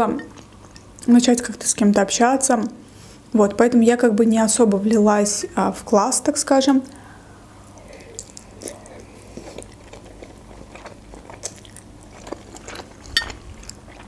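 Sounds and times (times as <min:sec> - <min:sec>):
chewing with wet mouth clicks: 0:07.7 - 0:14.0.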